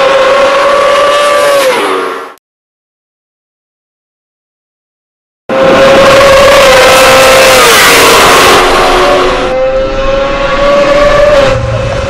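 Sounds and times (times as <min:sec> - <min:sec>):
motorcycle engine revving high: 0:05.5 - 0:12.0.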